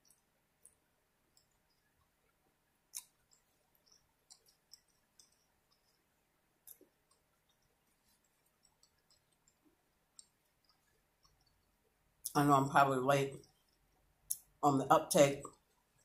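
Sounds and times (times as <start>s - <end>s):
wet mouth chewing clicks: 0.0s - 11.8s.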